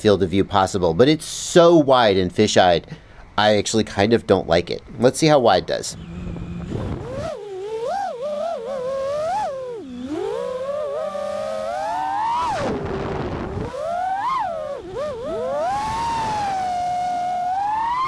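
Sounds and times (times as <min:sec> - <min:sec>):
drone motors whining: 0:05.6 - 0:18.0.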